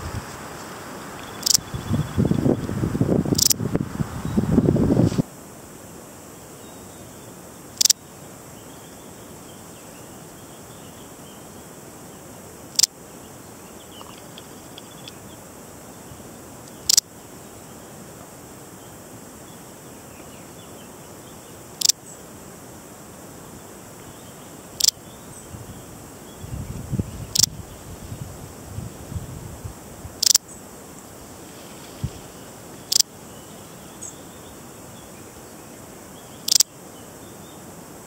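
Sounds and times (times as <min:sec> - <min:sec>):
cricket chirps: 0:00.0 - 0:38.0
faint background hiss: 0:00.0 - 0:38.0.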